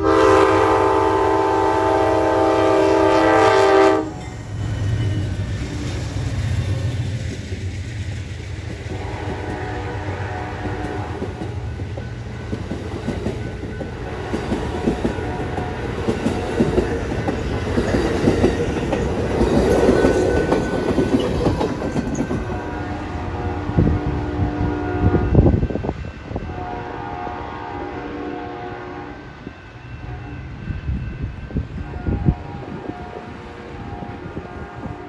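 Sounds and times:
distant locomotive horn: 0.0s - 4.3s, 8.9s - 11.8s, 14.0s - 16.8s, 22.4s - 35.0s
train wheels clattering over rails: 4.0s - 9.8s, 10.6s - 22.7s.

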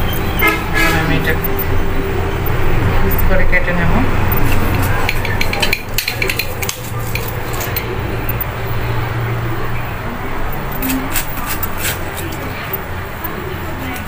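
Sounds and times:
steady low hum: 0.0s - 14.0s
sharp clicks: 4.3s - 8.5s.

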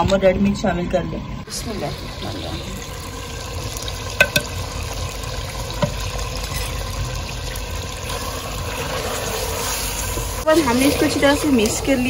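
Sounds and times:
chicken sizzling in oil: 1.5s - 12.0s
spoon clinking against pot: 4.2s - 4.6s.

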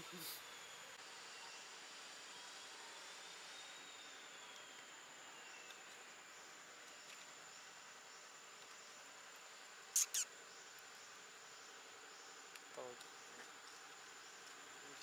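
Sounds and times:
insect drone: 0.0s - 15.0s.

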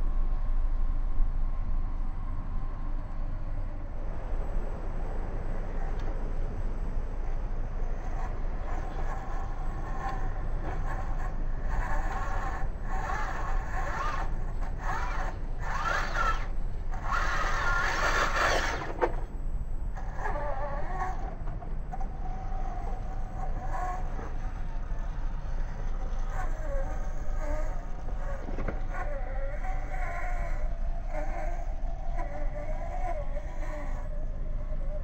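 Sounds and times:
rc car motor whining: 7.8s - 35.0s.

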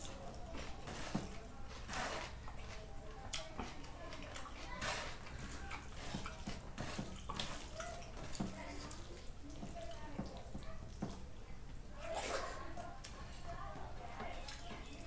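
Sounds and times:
hand mashing rice wet squelches: 0.0s - 11.4s.

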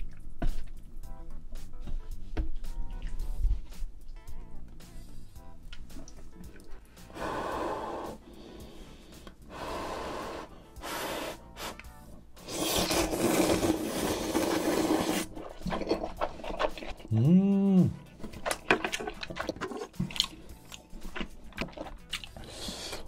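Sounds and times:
slurping noodles: 7.1s - 17.2s, 18.1s - 23.0s.

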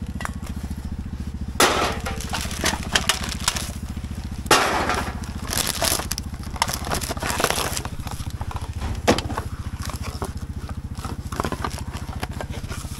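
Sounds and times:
engine idling: 0.0s - 12.9s
plastic bags crinkling: 1.8s - 4.1s, 4.8s - 12.4s.

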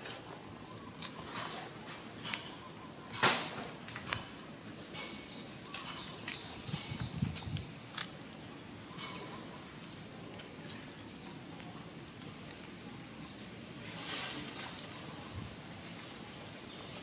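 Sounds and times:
outdoor background noise: 0.0s - 17.0s
bird chirping: 5.0s - 7.6s
soft rustle: 13.7s - 17.0s.

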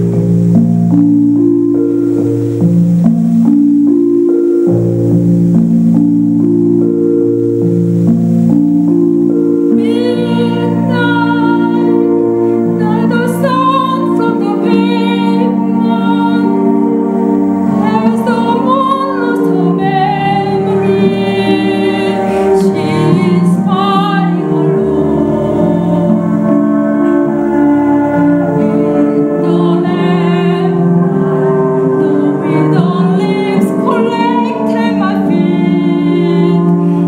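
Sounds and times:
sustained accompaniment chords: 0.0s - 37.0s
woman singing a slow ballad: 9.8s - 16.8s, 17.8s - 26.6s, 28.6s - 37.0s.

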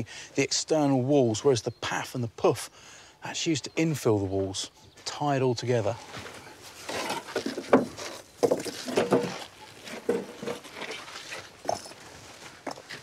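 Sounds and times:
stone knocking and scraping stone: 6.9s - 11.0s.

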